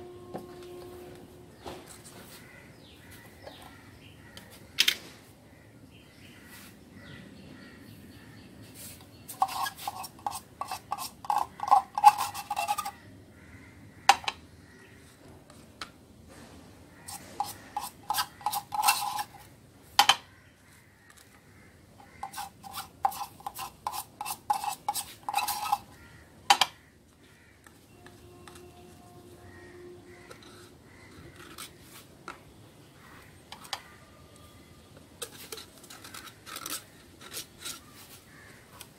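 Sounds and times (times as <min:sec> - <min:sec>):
stick scraping inside metal tin: 0:09.3 - 0:13.0, 0:17.1 - 0:19.5, 0:22.0 - 0:26.7, 0:28.4 - 0:32.0, 0:35.2 - 0:38.2.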